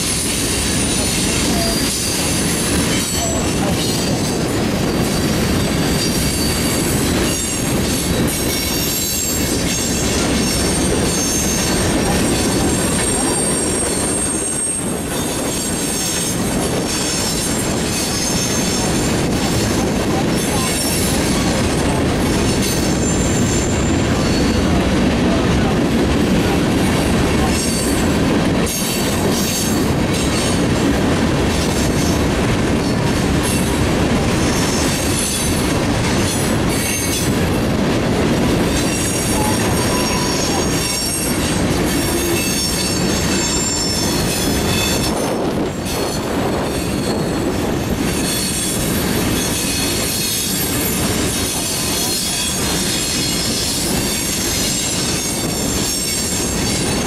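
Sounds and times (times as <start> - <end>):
freight train wheels rumbling on rails: 0.0 - 57.0
high-pitched wheel squeals: 38.9 - 41.3, 42.0 - 45.1.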